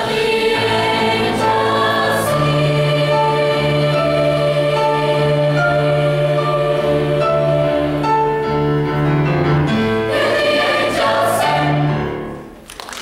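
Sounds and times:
choir singing held chords: 0.0s - 8.6s, 9.8s - 12.4s
audience applause: 12.6s - 13.0s.

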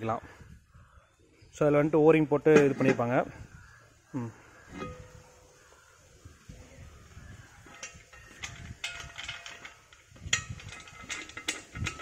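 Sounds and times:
metal lid clinking and scraping: 2.5s - 3.2s, 4.7s - 5.6s, 7.6s - 12.0s.

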